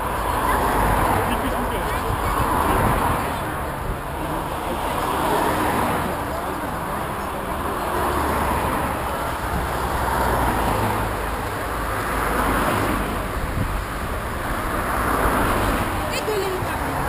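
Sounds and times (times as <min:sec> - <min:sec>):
cars driving past: 0:00.0 - 0:17.0.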